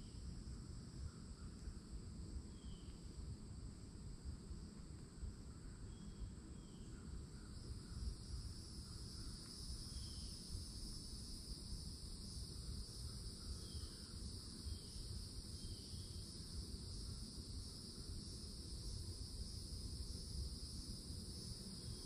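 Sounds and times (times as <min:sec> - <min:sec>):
cicadas droning: 0:00.0 - 0:22.0
faint bird chirps: 0:02.5 - 0:03.1, 0:05.7 - 0:08.1, 0:08.9 - 0:10.4, 0:13.1 - 0:15.0.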